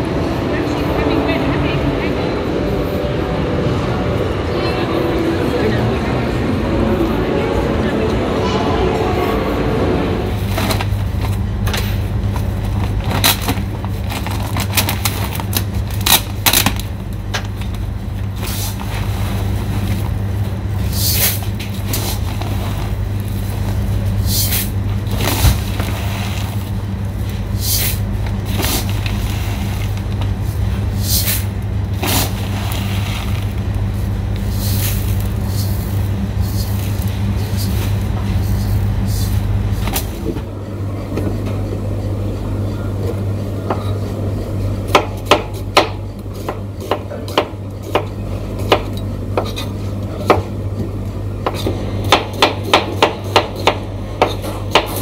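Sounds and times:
low machine hum: 0.0s - 55.0s
plastic sacks crinkling and rustling: 12.5s - 16.9s.

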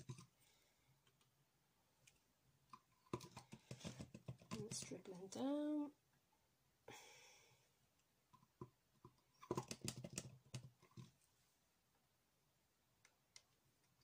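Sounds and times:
craft bottles clicking and tapping: 2.7s - 5.1s, 8.4s - 11.1s.

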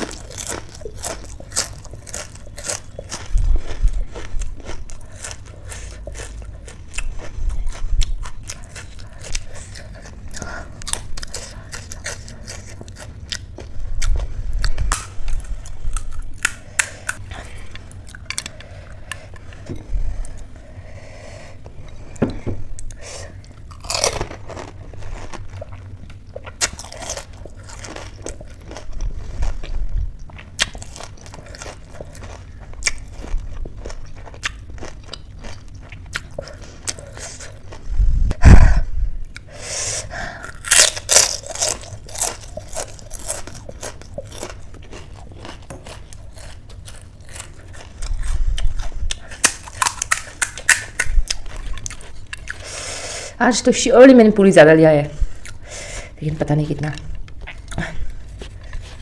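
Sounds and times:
wet chewing: 0.0s - 20.6s, 40.3s - 53.0s.

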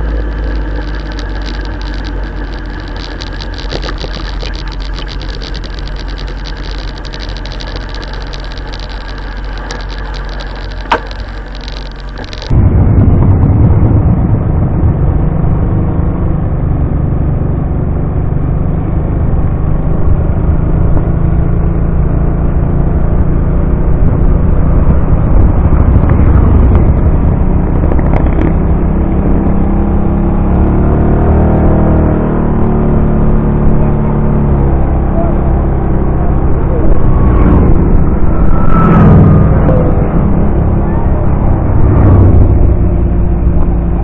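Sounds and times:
wind noise: 0.0s - 18.4s, 19.2s - 44.0s
motorcycle engine rumbling: 0.0s - 44.0s.

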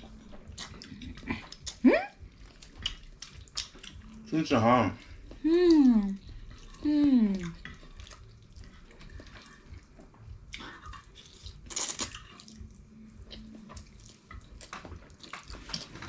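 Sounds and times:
slurping and chewing noodles: 0.0s - 5.4s, 6.2s - 16.0s
person humming: 5.4s - 6.2s, 6.8s - 7.6s.

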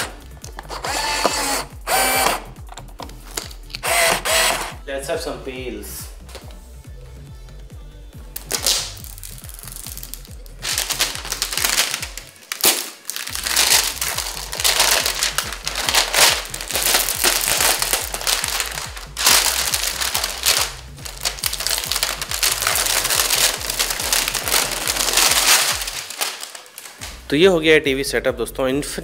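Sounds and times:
background music: 0.0s - 29.0s
plastic film peeling: 8.4s - 27.2s.

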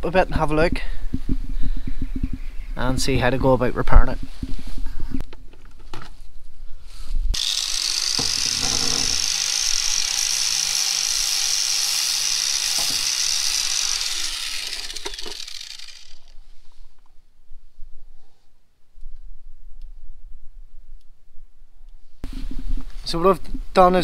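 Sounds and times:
angle grinder grinding: 7.4s - 16.6s.

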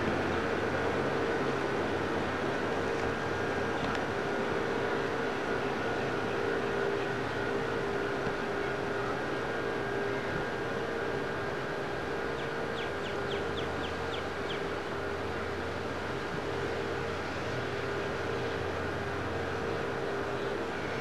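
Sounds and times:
outdoor hum and hiss: 0.0s - 21.0s.

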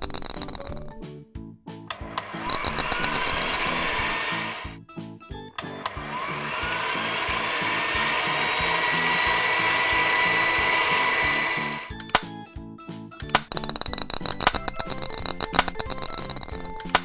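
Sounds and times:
background music with bass: 0.0s - 17.0s
cartoon machine whirring: 1.9s - 4.8s, 5.6s - 12.3s
rising sweep: 6.0s - 11.9s.

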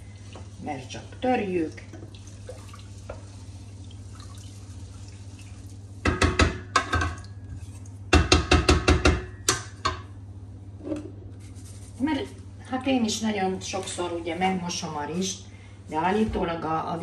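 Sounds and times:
utensil clinking against a pot: 6.0s - 10.1s.

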